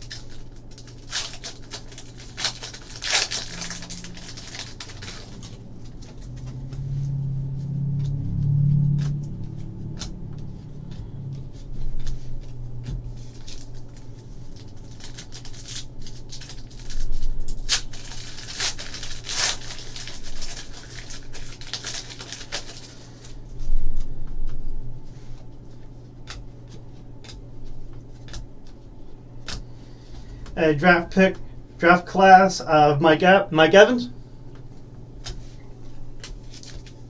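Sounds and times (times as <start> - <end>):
foil wrapper crinkling and tearing: 0.0 - 6.7, 11.8 - 24.0, 35.2 - 37.0
steady low hum: 0.0 - 37.0
cards being flipped: 26.2 - 28.8, 35.2 - 35.6.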